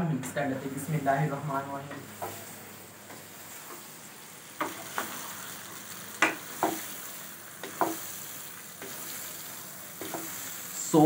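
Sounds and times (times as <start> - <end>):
frying hiss: 0.0 - 11.0
spatula scraping pan: 4.6 - 10.6.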